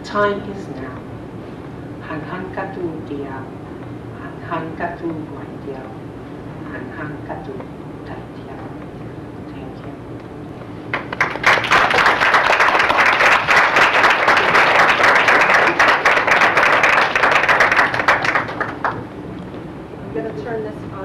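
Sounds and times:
audience applauding: 0:10.9 - 0:19.0.

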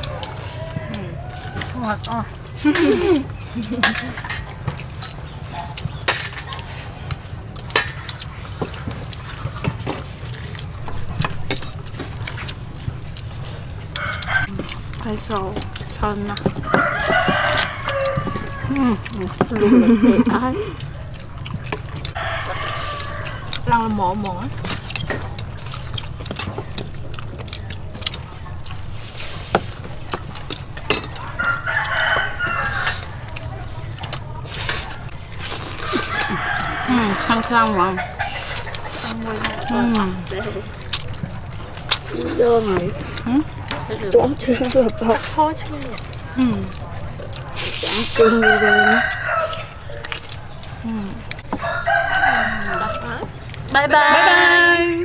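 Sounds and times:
rooster crowing: 0:00.0 - 0:02.0, 0:13.9 - 0:14.6, 0:16.5 - 0:19.1, 0:22.1 - 0:23.9, 0:31.2 - 0:33.5, 0:35.8 - 0:40.7, 0:48.1 - 0:53.4
spoons clicking against plates: 0:01.2 - 0:06.7, 0:29.5 - 0:32.2
cutlery clinking and scraping: 0:03.7 - 0:06.7, 0:11.0 - 0:12.6, 0:29.3 - 0:33.1.

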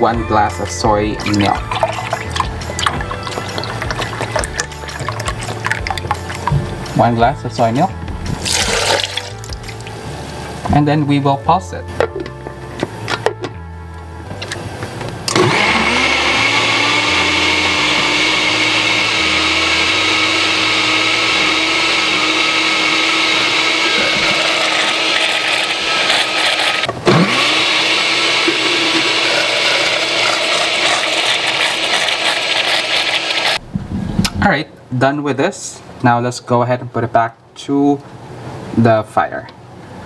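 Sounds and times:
blender running: 0:08.4 - 0:09.4, 0:15.3 - 0:33.6.

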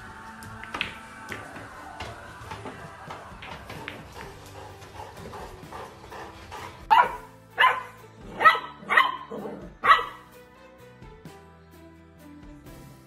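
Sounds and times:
puppy barking: 0:06.8 - 0:10.3.

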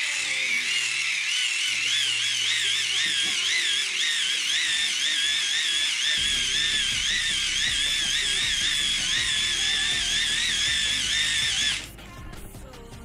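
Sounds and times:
hand-crank generator whine: 0:00.0 - 0:12.0.

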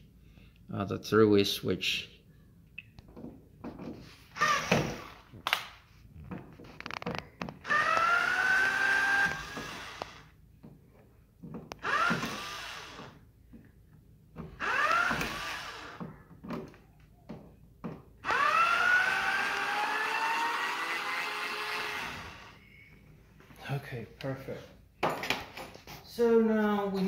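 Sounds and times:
cordless screwdriver whirring: 0:07.6 - 0:10.3, 0:11.8 - 0:13.2, 0:14.6 - 0:16.0, 0:18.2 - 0:22.6.

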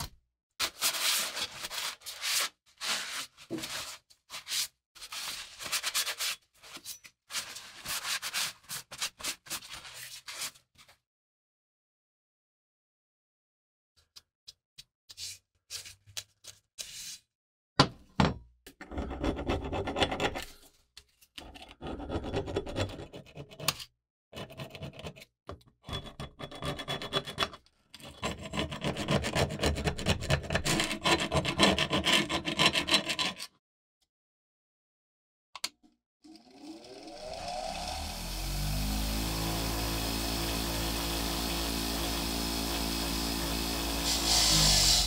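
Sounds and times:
hand tool scraping wooden handle: 0:44.0 - 0:45.0.

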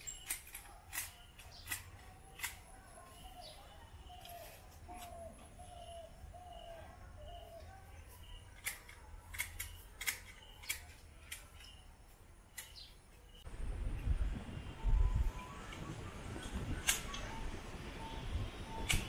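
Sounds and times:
small bird calling: 0:00.0 - 0:11.8.

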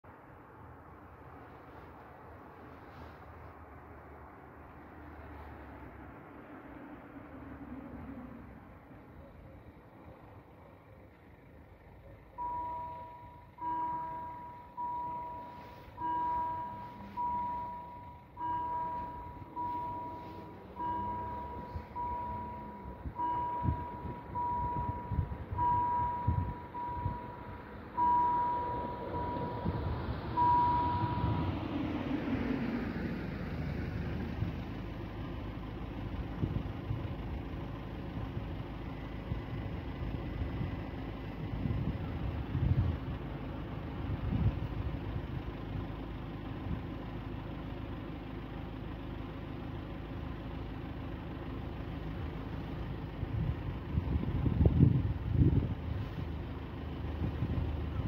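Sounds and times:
road vehicle passing: 0:00.0 - 0:58.0
level crossing warning bell: 0:12.4 - 0:31.8.

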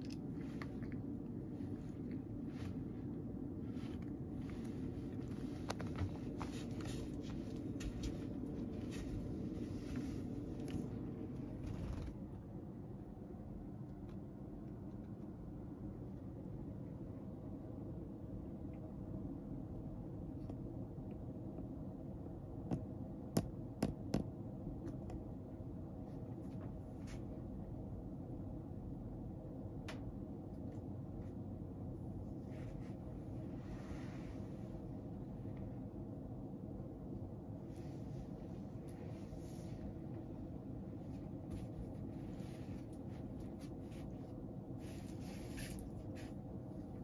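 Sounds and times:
low background hum: 0:00.0 - 0:47.0
soft fabric rustles: 0:00.1 - 0:12.6, 0:26.0 - 0:27.7, 0:30.6 - 0:36.0, 0:37.4 - 0:47.0.

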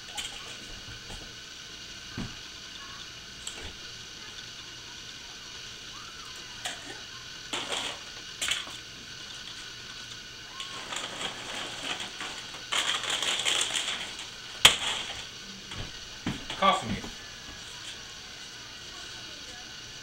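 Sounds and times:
plastic packaging crinkling: 0:10.6 - 0:15.2.

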